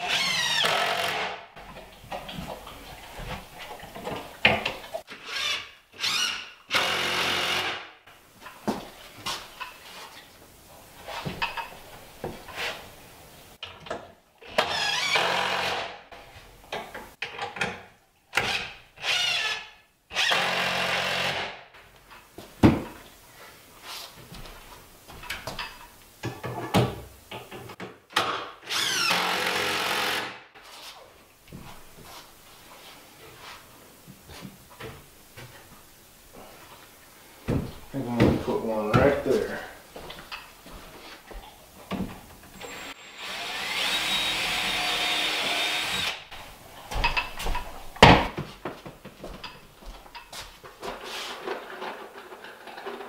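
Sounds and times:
cordless drill driving fasteners: 0.0s - 1.4s, 5.2s - 7.8s, 14.5s - 15.9s, 18.4s - 21.5s, 28.6s - 30.4s, 42.6s - 46.2s
wood knocks and tool handling: 46.9s - 52.0s.

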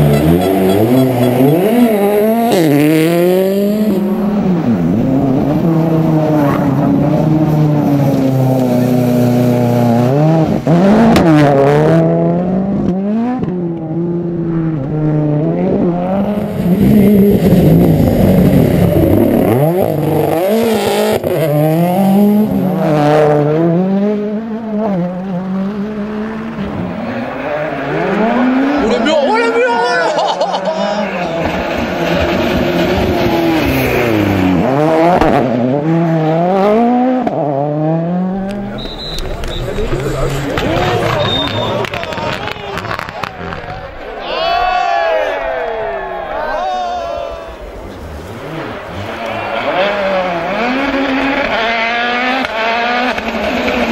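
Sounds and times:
rally car engine revving: 0.0s - 44.3s, 47.0s - 53.9s
sharp crack: 38.4s - 44.1s.

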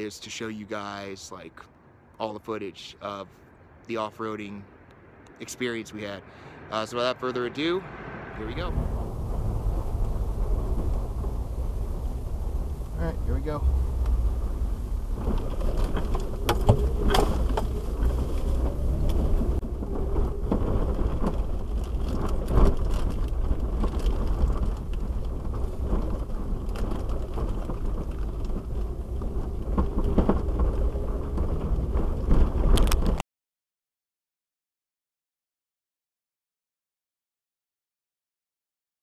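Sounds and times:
engine and tyres rumbling: 4.7s - 33.2s
knocks and rattles: 8.8s - 33.2s.

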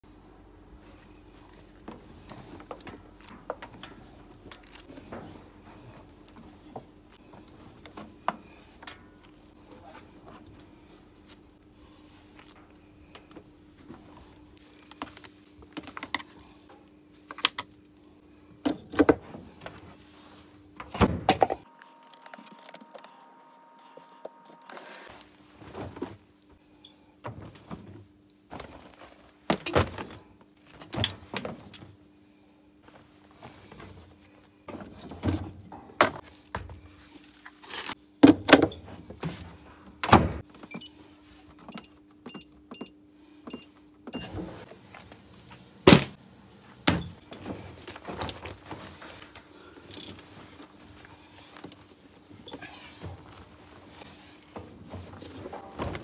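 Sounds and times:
knocks and thuds of handling laundry: 45.9s - 46.2s.

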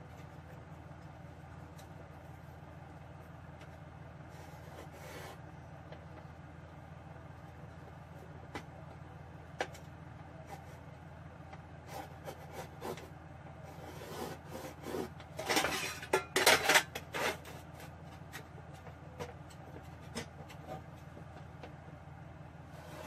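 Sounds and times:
pencil scratching on steel: 11.9s - 13.1s, 13.7s - 15.2s.

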